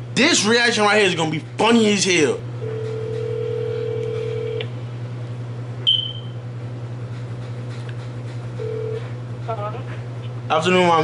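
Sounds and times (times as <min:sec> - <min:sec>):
phone ringback tone: 0:02.6 - 0:04.6, 0:08.6 - 0:09.1.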